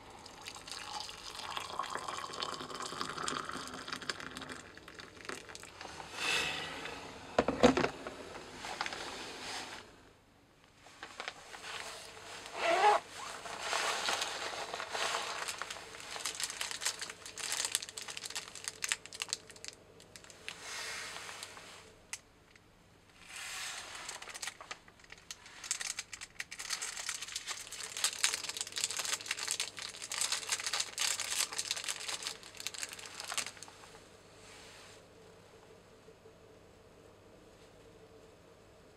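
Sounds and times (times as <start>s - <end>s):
plastic wrapper crinkling and tearing: 12.4s - 20.6s, 23.8s - 33.9s.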